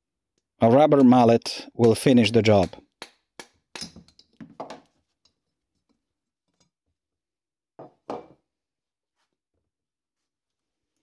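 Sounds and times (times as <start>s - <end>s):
rubber mallet striking metal: 0.9s - 4.1s.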